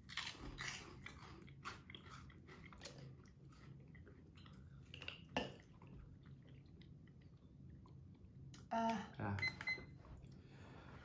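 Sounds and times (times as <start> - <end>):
chewing crunchy snacks: 0.0 - 7.4.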